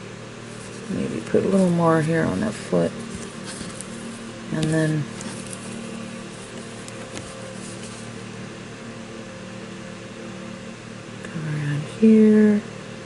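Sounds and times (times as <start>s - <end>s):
low background hum: 0.0s - 13.0s.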